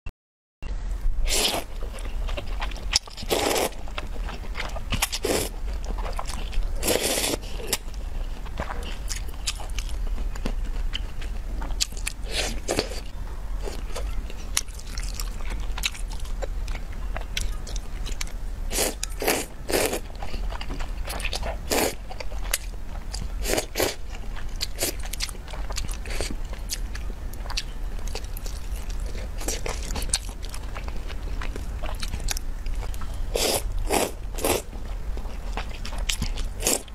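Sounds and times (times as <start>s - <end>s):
chewing: 1.4s - 36.9s.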